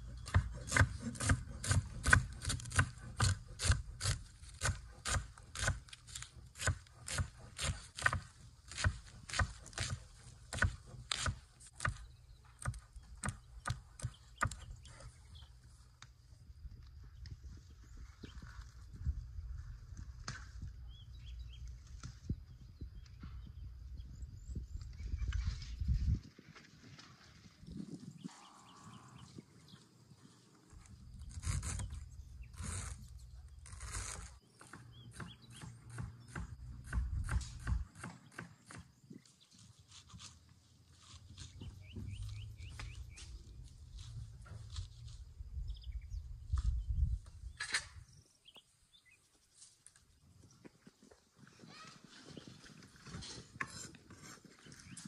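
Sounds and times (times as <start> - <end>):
leaves rustling: 39.4 - 45.5.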